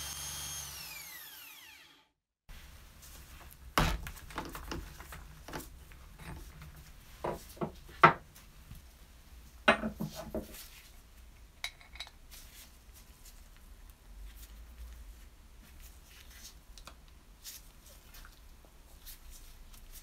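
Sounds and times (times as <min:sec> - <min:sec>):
metal tools knocking on wood: 0:06.2 - 0:08.2, 0:09.7 - 0:10.5.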